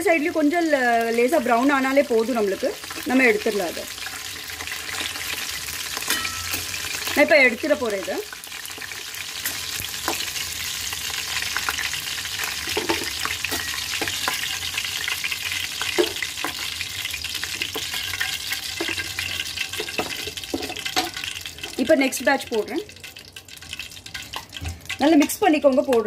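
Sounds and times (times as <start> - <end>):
chicken deep-frying in oil: 0.0 - 26.0
slotted spoon clinking on pan: 6.0 - 6.7.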